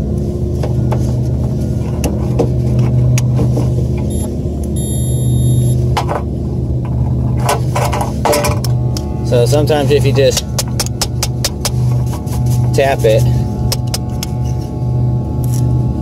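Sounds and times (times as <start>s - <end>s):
low machinery hum: 0.0s - 16.0s
multimeter continuity beep: 4.1s - 5.8s.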